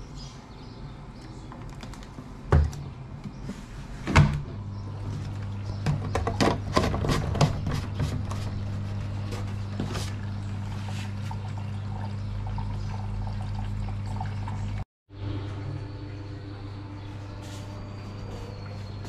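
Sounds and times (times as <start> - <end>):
washing machine filling with water: 5.0 - 14.8.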